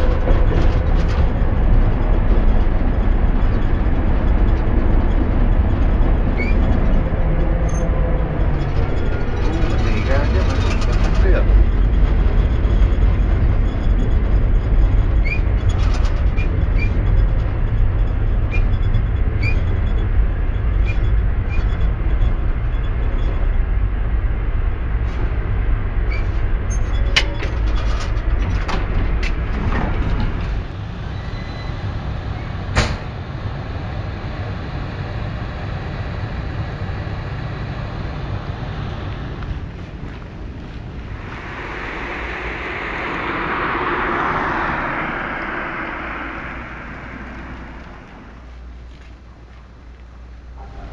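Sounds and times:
tram running along track: 0.0s - 50.9s
running gear squeaks and clicks: 3.4s - 17.4s.

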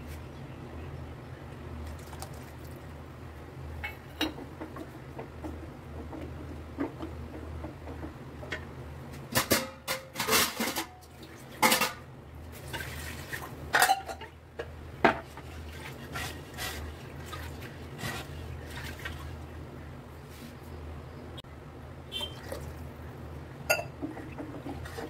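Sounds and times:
ladle scraping metal pot: 15.3s - 19.2s.

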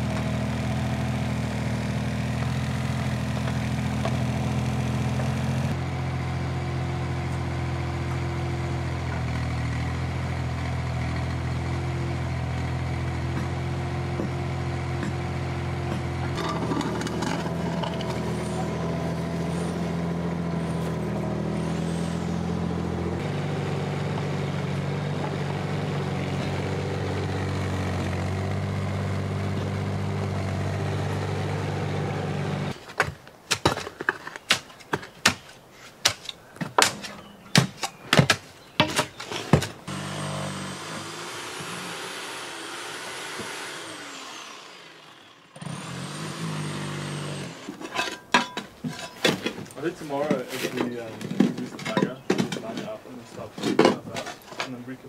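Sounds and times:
excavator engine running: 0.0s - 32.8s, 39.7s - 48.0s
sharp knocks and clatters: 15.0s - 18.7s, 47.8s - 54.8s.

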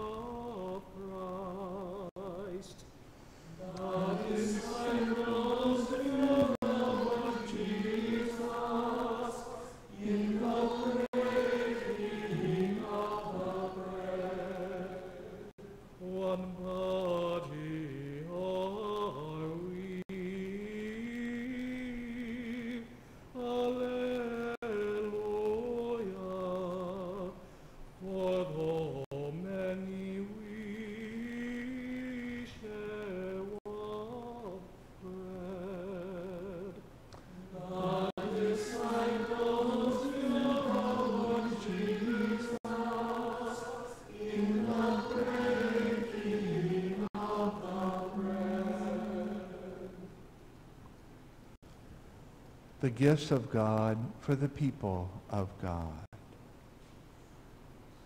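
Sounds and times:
choir singing a slow chant: 0.0s - 2.8s, 3.5s - 50.3s.

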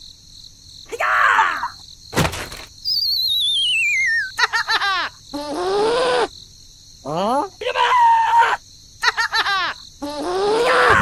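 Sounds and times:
cartoon squeak: 2.8s - 4.4s, 10.0s - 11.0s
high squeaky chirping: 2.8s - 4.4s
wobbling whistle falling in pitch: 2.9s - 4.3s.

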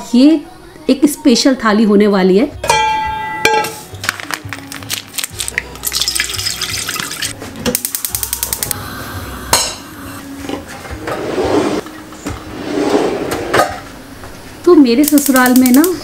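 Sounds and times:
gas igniter clicking: 7.7s - 8.8s, 15.0s - 16.0s.

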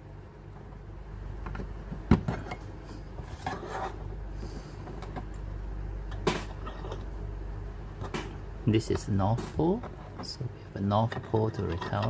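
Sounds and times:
plastic scraping and rubbing: 3.2s - 4.1s, 9.3s - 12.0s.

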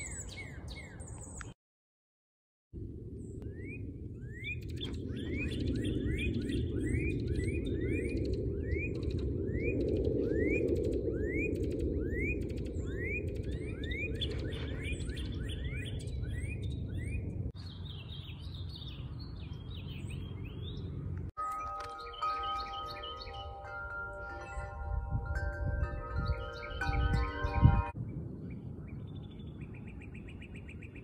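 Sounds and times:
bird's quick high-pitched song: 0.0s - 1.6s, 3.4s - 20.9s, 24.4s - 31.0s
birds singing slurred whistles: 0.0s - 1.6s, 3.2s - 21.0s, 21.6s - 31.0s
steady low rumble: 2.8s - 18.0s.

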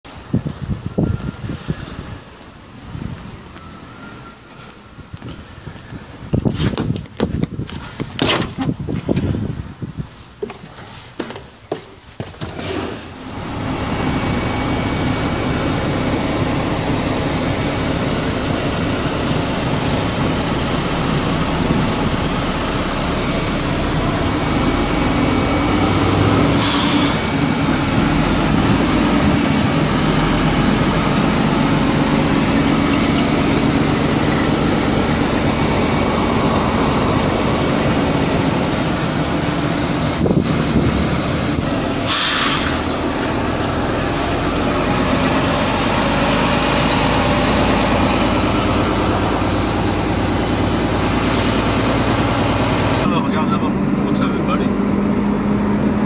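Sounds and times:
truck diesel engine running: 13.2s - 56.0s
short hiss: 26.6s - 27.2s, 42.1s - 42.9s.

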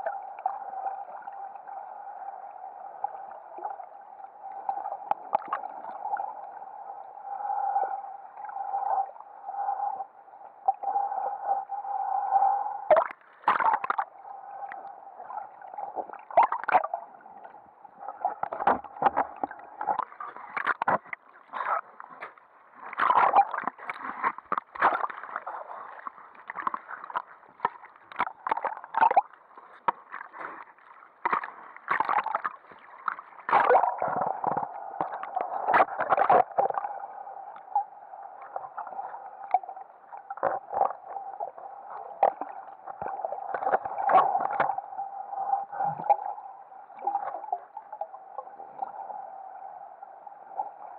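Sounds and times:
underwater hum: 0.0s - 50.9s
water splashing and sloshing: 2.9s - 6.4s, 12.9s - 49.6s.

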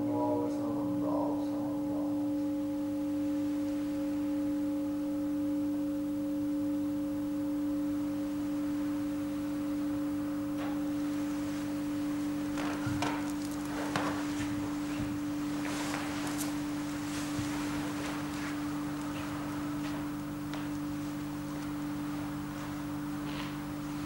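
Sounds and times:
bowl bell ringing: 2.2s - 23.2s
soft rustle: 10.6s - 24.0s.

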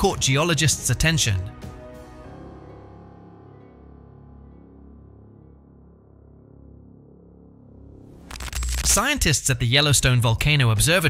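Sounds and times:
ambient music with low drone: 0.0s - 8.8s.

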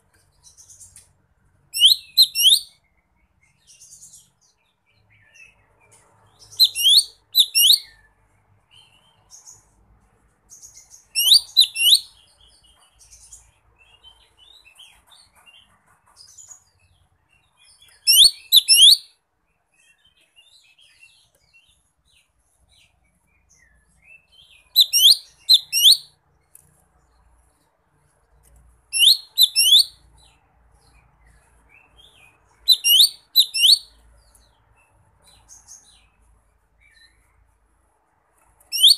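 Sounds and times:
soft bird twittering: 1.8s - 8.1s, 10.5s - 19.1s, 19.8s - 27.3s, 28.9s - 36.2s, 38.6s - 38.9s.

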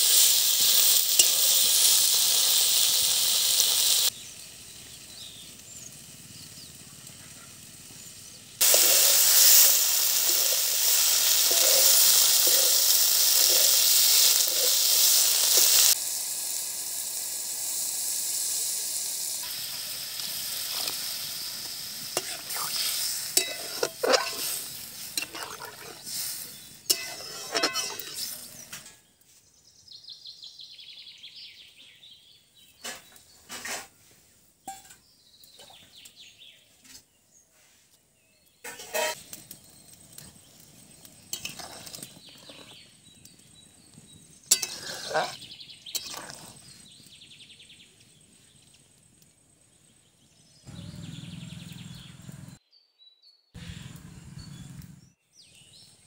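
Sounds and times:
curry sizzling in a pot: 0.0s - 29.0s, 38.5s - 47.2s
water pouring: 22.2s - 28.4s
spatula clinking on pot: 23.4s - 24.6s, 26.9s - 28.4s, 44.5s - 46.4s.

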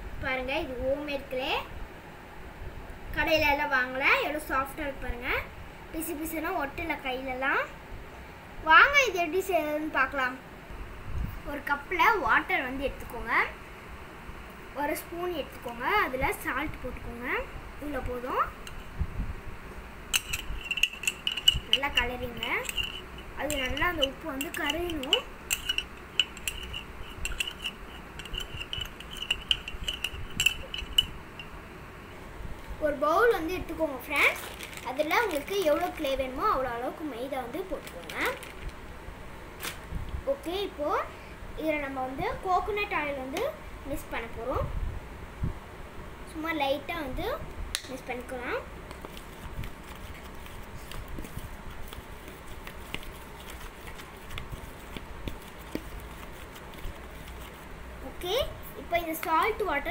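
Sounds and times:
low steady background hum: 0.0s - 59.9s
metal spoon clinking in ceramic mug: 20.2s - 31.5s.

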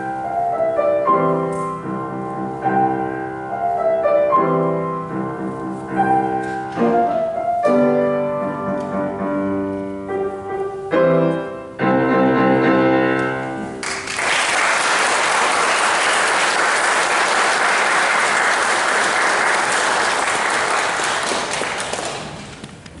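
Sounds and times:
audience applause: 13.8s - 22.6s.

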